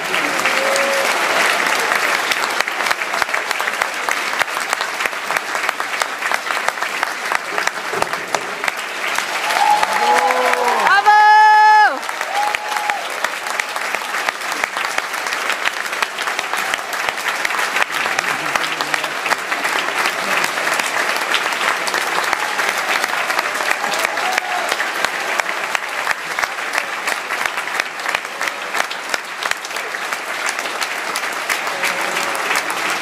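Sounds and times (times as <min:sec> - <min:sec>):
audience applauding: 0:00.0 - 0:33.0.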